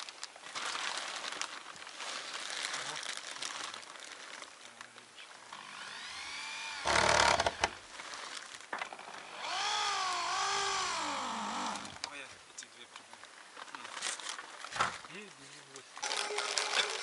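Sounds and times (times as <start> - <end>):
electric power tool motor whining: 5.4 - 7.8, 9.0 - 12.1.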